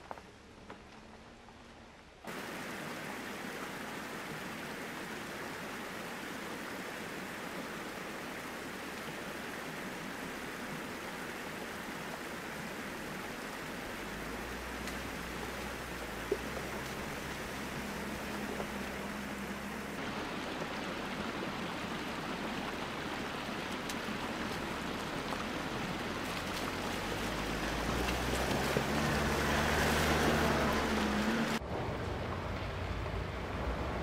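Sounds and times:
stream rushing over rocks: 2.3s - 31.8s
pickup engine rumble: 11.6s - 34.0s.

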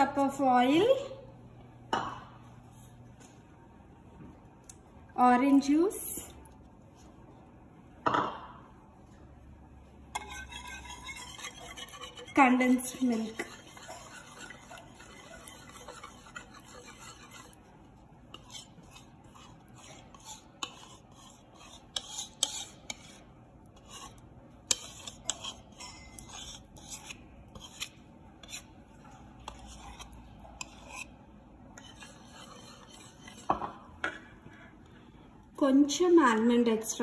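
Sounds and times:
wire whisk swishing: 10.2s - 23.2s, 31.8s - 33.5s.

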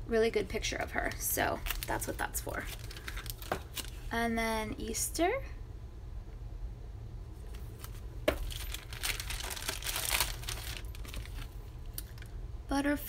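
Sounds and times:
steady low hum: 0.0s - 13.0s
plastic crinkling and rustling: 0.8s - 4.1s, 7.5s - 12.3s.

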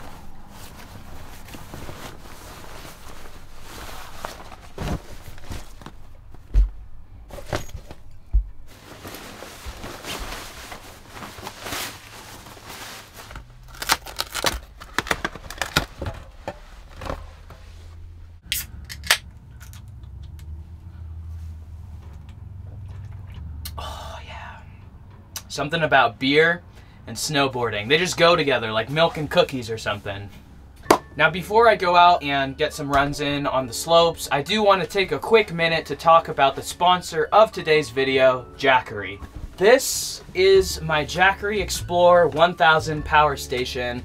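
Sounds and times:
fabric and nylon rustling: 0.0s - 18.4s
low steady hum: 0.0s - 44.0s.

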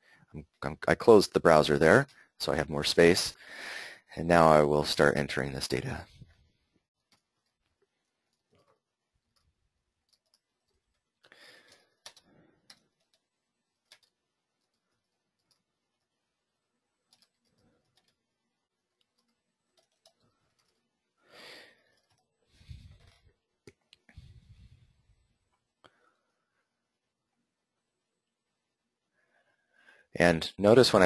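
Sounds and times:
keyboard and mouse clicks: 7.0s - 16.1s, 17.0s - 18.3s, 18.9s - 20.9s, 21.9s - 24.1s.

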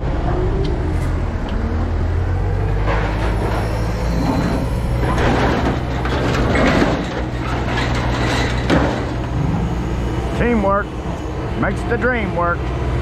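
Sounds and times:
diesel engine hum: 0.0s - 13.0s
metal scrap clanking and scraping: 2.7s - 9.8s.

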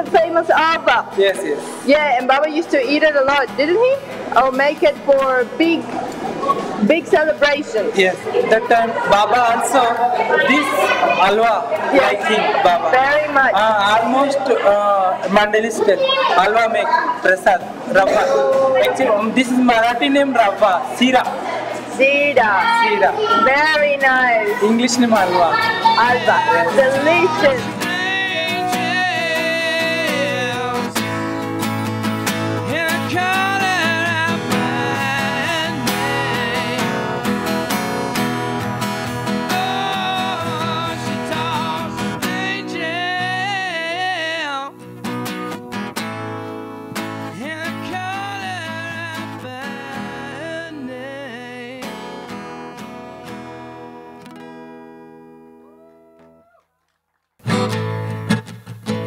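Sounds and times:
strummed acoustic guitar: 0.0s - 55.6s, 57.4s - 59.0s
man singing: 24.5s - 31.5s, 32.5s - 37.7s, 39.2s - 44.9s, 47.2s - 52.4s.

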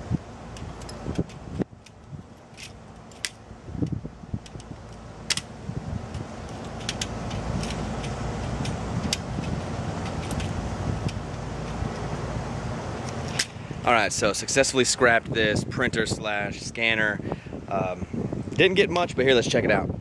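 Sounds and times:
pliers clicking on parts: 0.5s - 5.5s, 6.1s - 12.1s.

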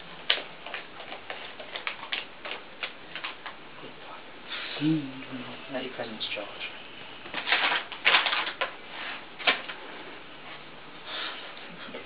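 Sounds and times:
plastic packet crinkling: 0.2s - 3.6s, 7.3s - 8.8s.

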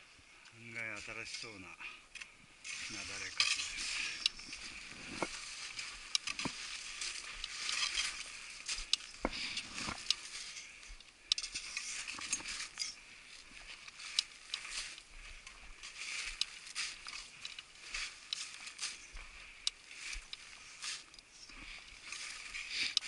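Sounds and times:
boots crunching through snow: 2.7s - 10.8s, 11.5s - 23.0s
metallic clicks of climbing hardware: 8.8s - 13.0s.

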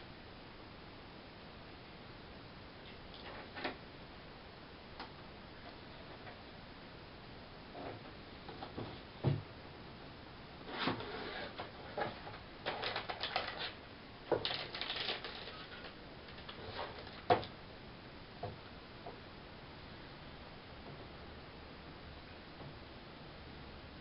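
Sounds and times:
plastic bag crinkling: 12.0s - 17.3s.

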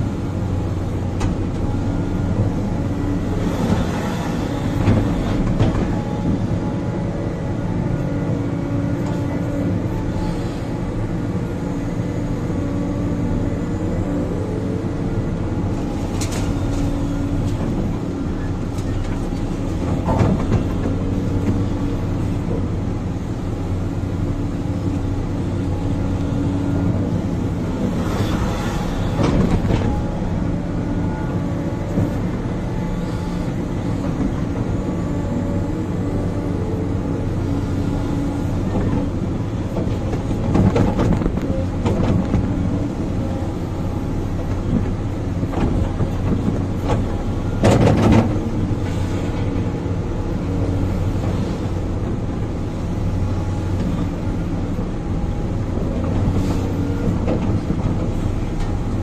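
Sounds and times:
diesel engine running: 0.0s - 59.0s
excavator bucket knocks and clatters: 19.8s - 21.6s, 39.7s - 42.6s, 44.7s - 48.4s.

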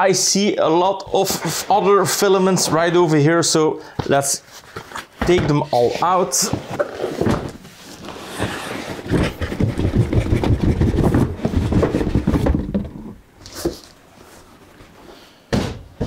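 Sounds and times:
cardboard boxes scraping and rustling: 4.5s - 15.0s.

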